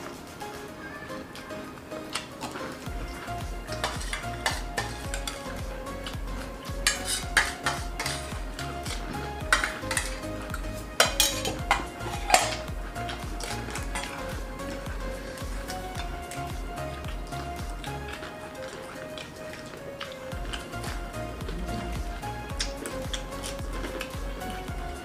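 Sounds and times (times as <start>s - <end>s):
background music with a beat: 0.0s - 25.0s
eating sounds: 0.0s - 25.0s
spoons clinking on steel plates: 2.0s - 5.4s, 6.8s - 10.2s, 11.0s - 14.2s.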